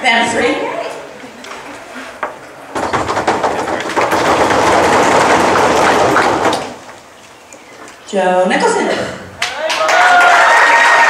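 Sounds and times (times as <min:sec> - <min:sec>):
drum roll: 0:02.7 - 0:06.8.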